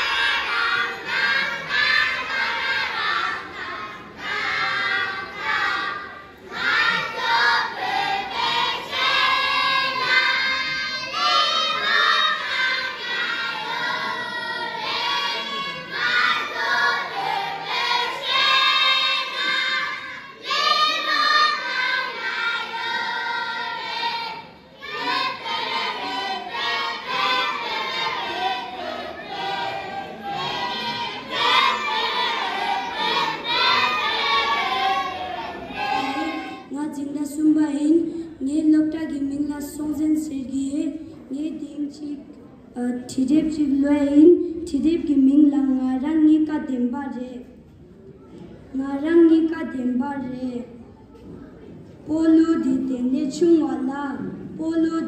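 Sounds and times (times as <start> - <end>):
children singing: 0.0 - 36.7.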